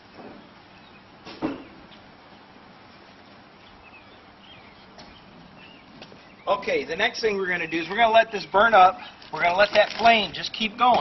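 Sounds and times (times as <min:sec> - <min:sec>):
charcoal fire hissing: 0:08.9 - 0:10.6.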